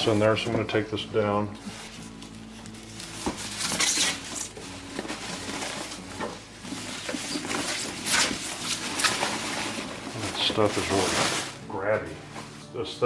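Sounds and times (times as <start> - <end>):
plastic wrapping crinkling: 1.6 - 11.6.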